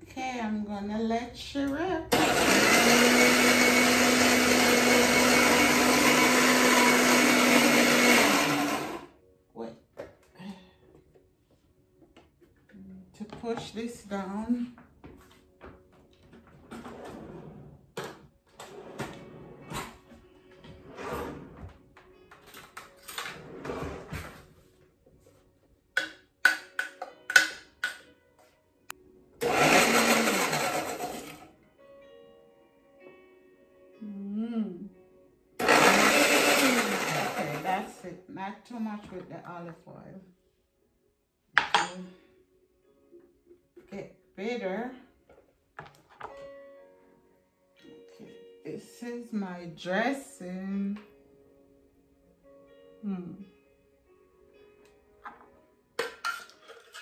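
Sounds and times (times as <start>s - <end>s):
electric blender whirring: 2.1s - 9.1s, 29.4s - 31.4s, 35.6s - 37.9s.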